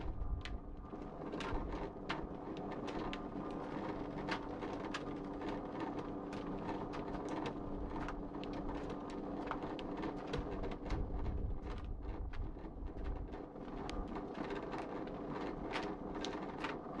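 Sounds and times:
conveyor machine hum: 0.0s - 17.0s.

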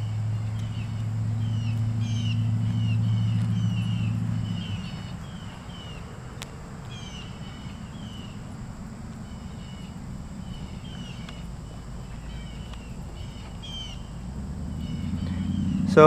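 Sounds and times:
small birds chirping: 0.0s - 16.0s
steady low rumble: 0.0s - 16.0s
faint ticks: 6.4s - 7.0s, 8.4s - 13.7s.

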